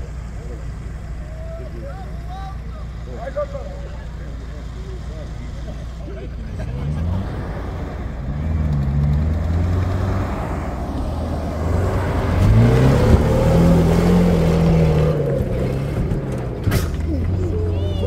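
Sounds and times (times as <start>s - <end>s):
off-road vehicle engine revving: 0.0s - 18.0s.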